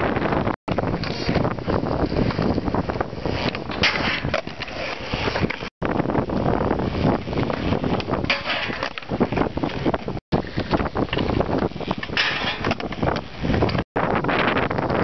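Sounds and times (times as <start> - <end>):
skateboard wheels rolling on concrete: 0.0 - 15.0
wind buffeting microphone: 0.0 - 15.0
skateboard scraping metal rail: 3.2 - 5.7, 7.6 - 9.5, 10.4 - 13.8.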